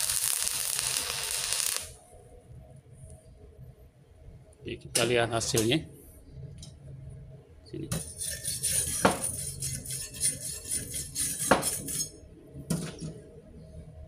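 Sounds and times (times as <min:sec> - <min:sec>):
wire brush scrubbing steel: 0:08.0 - 0:12.2.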